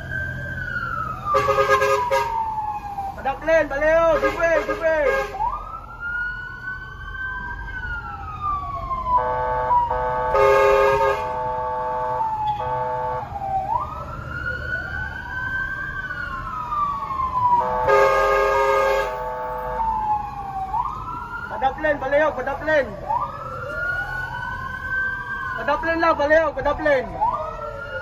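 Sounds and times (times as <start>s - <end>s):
fire truck siren wailing: 0.0s - 28.0s
horn blasts: 1.3s - 2.4s, 4.1s - 5.5s, 9.2s - 13.3s, 17.6s - 19.9s.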